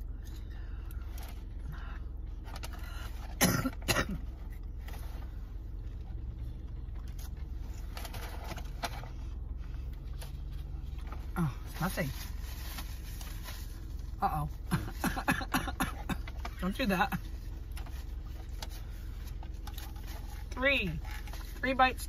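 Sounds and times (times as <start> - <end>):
car engine hum inside cabin: 0.0 - 22.0
person coughing: 3.4 - 4.3, 14.7 - 16.3.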